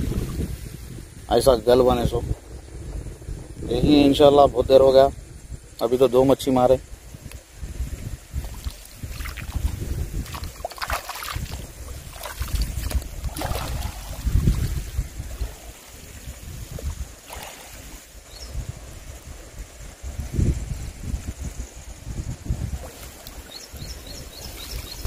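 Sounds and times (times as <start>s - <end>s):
wind buffeting microphone: 0.0s - 25.0s
water lapping: 8.1s - 20.1s.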